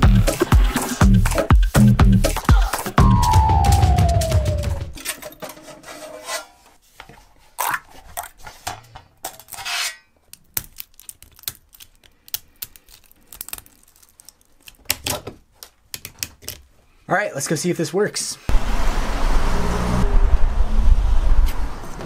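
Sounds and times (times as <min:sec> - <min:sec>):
rubbing and scraping plastic part: 0:05.0 - 0:09.9.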